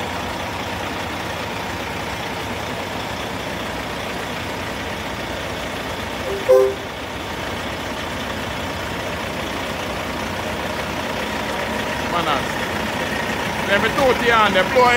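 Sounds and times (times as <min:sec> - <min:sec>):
diesel truck engine idling: 0:00.0 - 0:14.9
loud two-note beep: 0:06.3 - 0:07.0.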